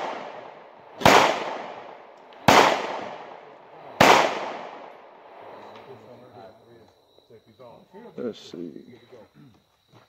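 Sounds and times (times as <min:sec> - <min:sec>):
rifle shots with echo: 0:00.0 - 0:05.6.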